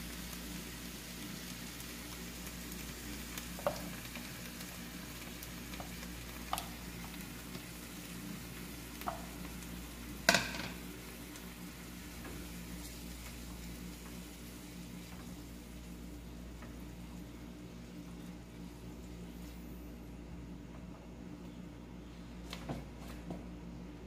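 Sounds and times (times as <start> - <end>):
sauce sizzling in a frying pan: 0.0 - 19.7.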